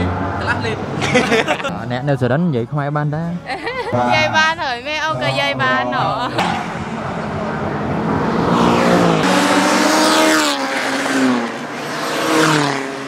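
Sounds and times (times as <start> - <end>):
race car engine revving: 6.3 - 13.0.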